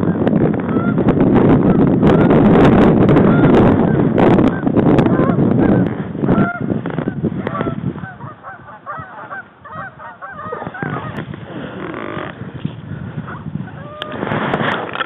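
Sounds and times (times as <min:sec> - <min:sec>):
loud rush of wind: 0:00.0 - 0:15.0
geese honking: 0:03.2 - 0:11.2, 0:13.3 - 0:14.2.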